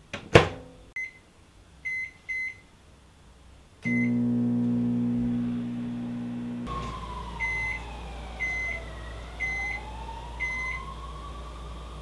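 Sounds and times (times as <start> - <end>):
microwave oven hum: 3.8 - 11.2.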